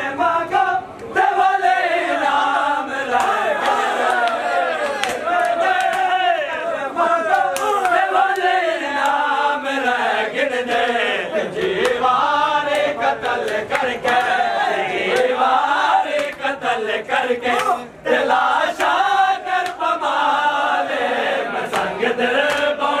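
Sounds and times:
men chanting together: 0.0 - 23.0
hands slapping bare chests: 3.2 - 6.1, 17.6 - 17.8, 21.7 - 22.8.

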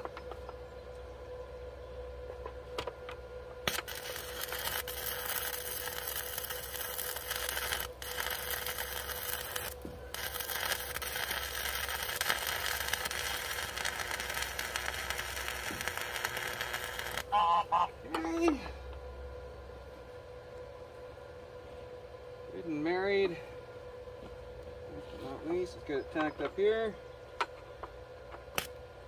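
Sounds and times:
welding arc crackling sizzle: 3.6 - 17.7.

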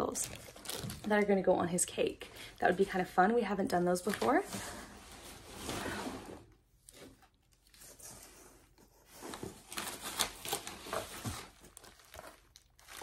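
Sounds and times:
packaging rustling and crinkling: 0.0 - 1.4, 9.1 - 13.0.

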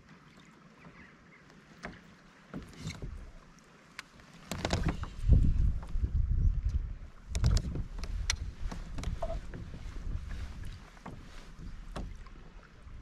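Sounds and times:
light clicks and knocks: 1.5 - 6.0, 6.6 - 12.4.

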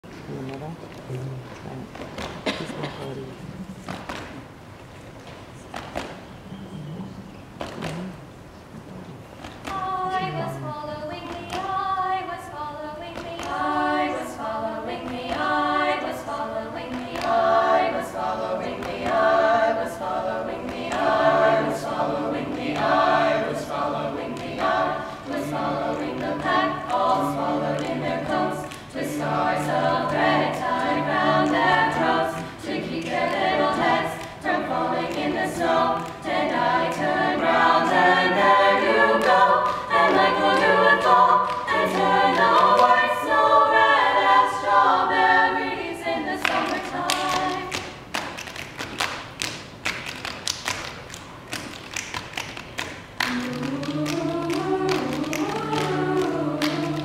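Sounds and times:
low held bass voice: 0.3 - 1.9
a cappella choir singing: 9.4 - 57.0.

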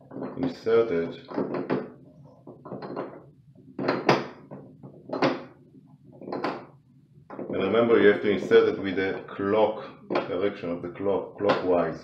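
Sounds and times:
metal drain flange knocking and scraping: 0.0 - 0.6, 1.2 - 5.5.

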